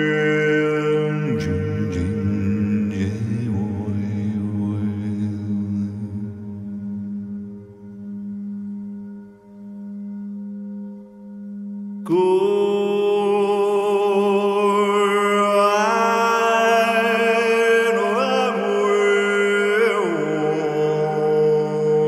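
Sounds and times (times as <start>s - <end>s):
overtone chanting voice: 0.0s - 8.0s, 12.0s - 22.0s
singing bowl drone: 0.0s - 22.0s.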